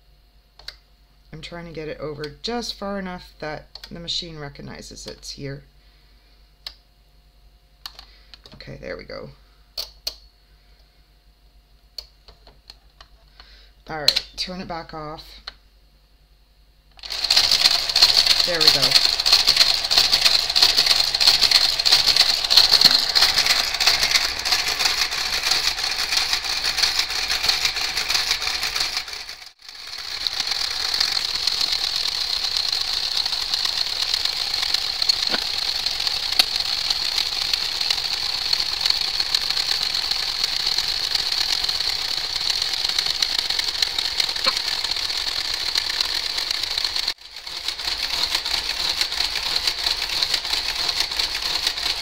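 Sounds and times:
knitting machine carriage running: 17.0 - 52.0.

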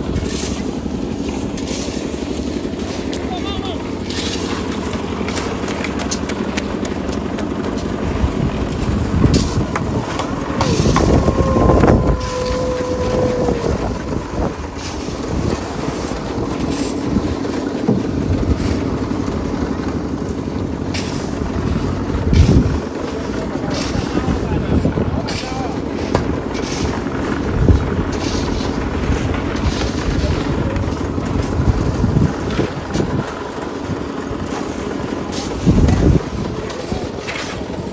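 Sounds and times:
concrete mixer engine running: 0.0 - 37.9
hand tools scraping wet concrete: 0.0 - 37.9.

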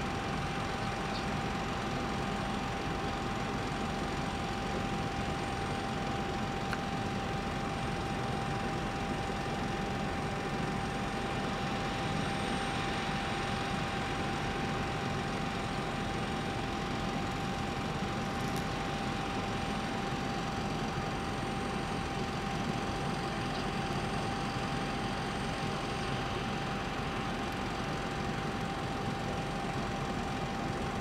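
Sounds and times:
machinery drone: 0.0 - 31.0.

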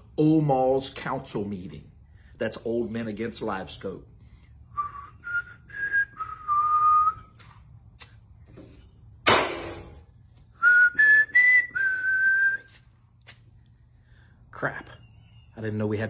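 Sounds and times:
person whistling a tune: 4.7 - 7.4, 10.6 - 12.8.

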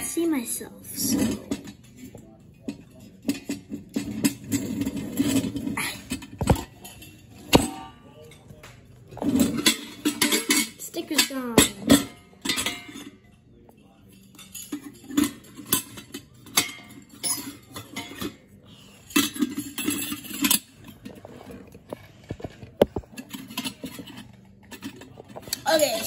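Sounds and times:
metal parts clinking: 14.1 - 26.0.

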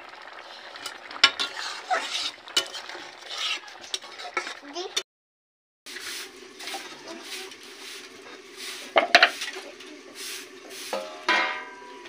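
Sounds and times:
steel kitchenware clinking: 10.9 - 12.0.

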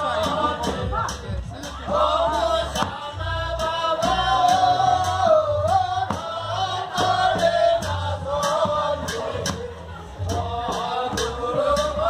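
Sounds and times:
large drums beating: 0.0 - 12.0
men singing together: 0.0 - 12.0.

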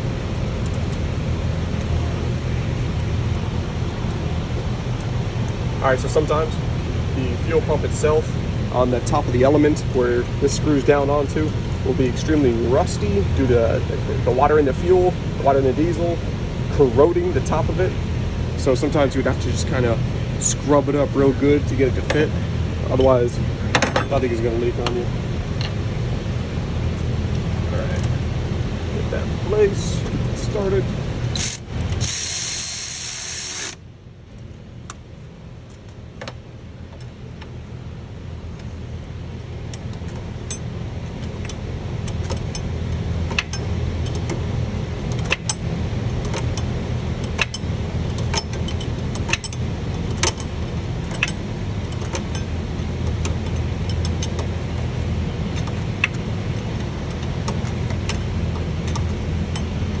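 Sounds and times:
low steady hum: 0.0 - 60.0
cordless ratchet running: 31.3 - 33.8.

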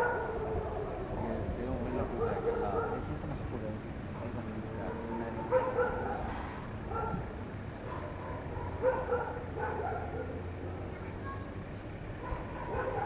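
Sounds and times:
dog barking: 0.0 - 1.1, 1.9 - 3.1, 4.8 - 10.5, 11.2 - 11.6, 12.2 - 13.0.

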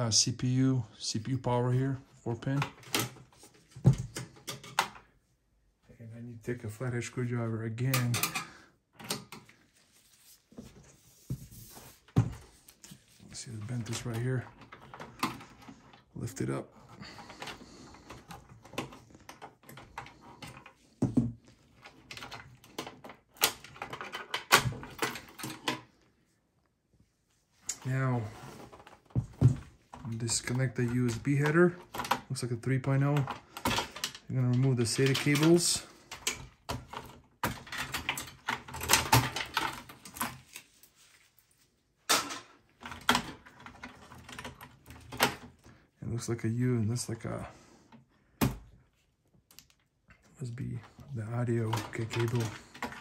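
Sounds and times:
cable rustling: 9.0 - 53.0
light clicks and rattles: 49.4 - 53.0.

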